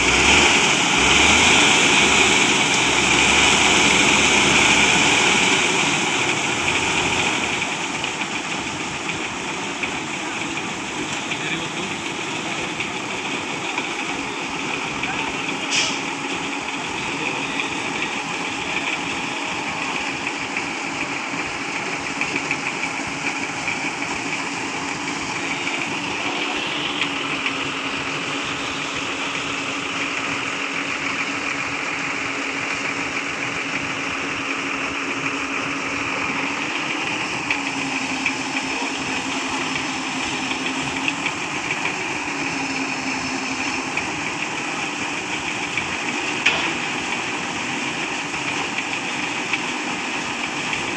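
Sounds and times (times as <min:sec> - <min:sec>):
truck engine idling: 0:00.0 - 0:50.9.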